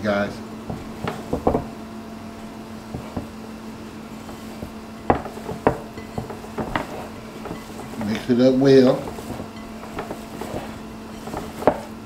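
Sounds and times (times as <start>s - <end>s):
hands kneading ground meat: 0.1s - 12.0s.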